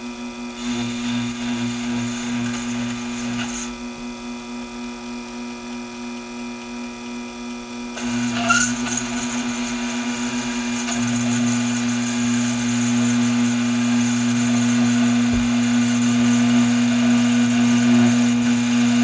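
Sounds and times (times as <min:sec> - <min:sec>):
lathe motor hum: 0:00.6 - 0:04.0, 0:08.0 - 0:19.0.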